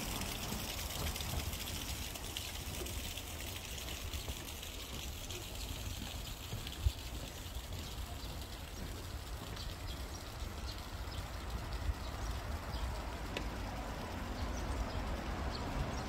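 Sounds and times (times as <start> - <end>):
faint clicks and ticks: 0.0 - 15.9.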